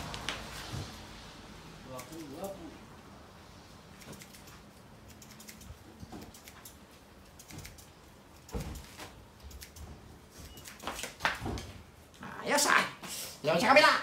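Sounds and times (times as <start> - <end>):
scissors snipping hair: 1.9 - 2.6, 3.9 - 9.9.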